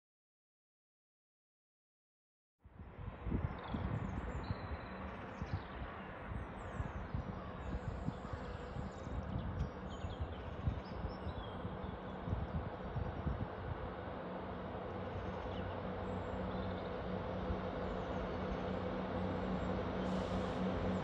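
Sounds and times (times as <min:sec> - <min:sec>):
diesel train engine rumble: 0:11.4 - 0:21.0
birds chirping: 0:14.5 - 0:21.0.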